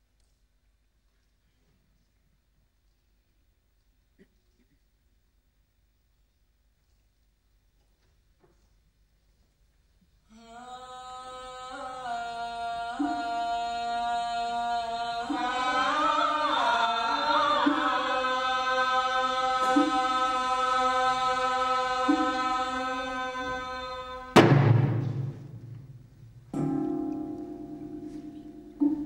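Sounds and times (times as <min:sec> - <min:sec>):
woman singing chant-like line: 0:10.3 - 0:24.4.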